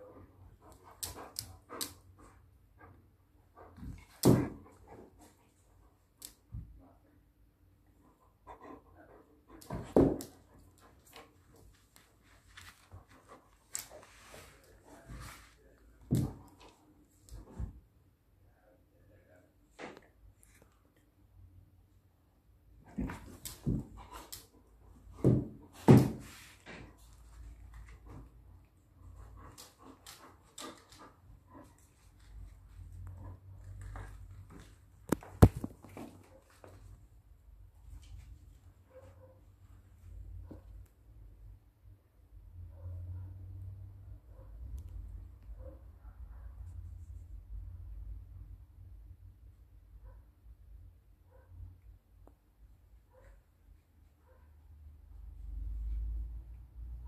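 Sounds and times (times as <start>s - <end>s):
dog panting and snuffling: 0.0s - 5.6s
light clicks and scuffles: 9.7s - 17.8s.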